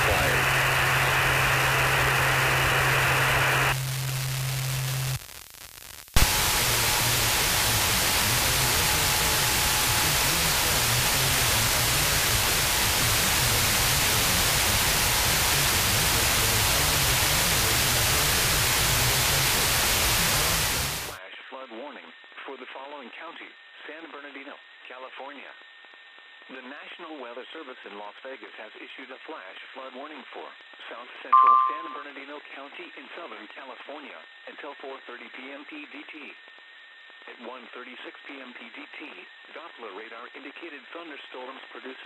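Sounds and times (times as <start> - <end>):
filtered noise: 0.0 - 21.2
radio static hiss: 0.0 - 21.2.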